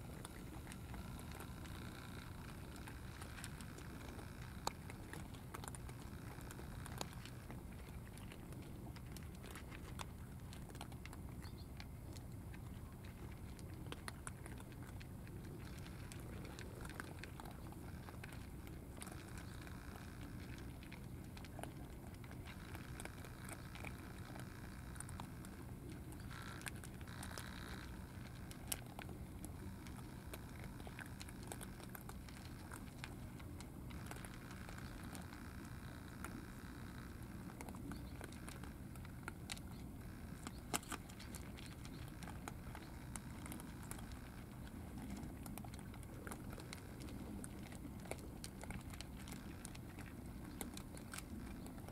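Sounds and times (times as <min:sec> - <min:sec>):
cats chewing clicks: 0:00.0 - 0:51.9
low background noise: 0:00.0 - 0:51.9.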